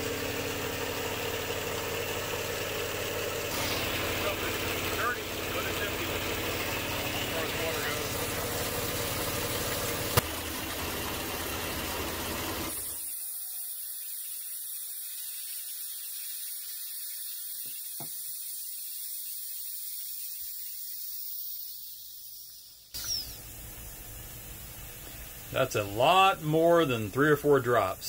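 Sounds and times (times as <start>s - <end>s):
air compressor running: 0.0s - 28.0s
burst of air and water spitting: 3.5s - 4.7s, 12.6s - 23.6s
faint hiss: 12.9s - 28.0s.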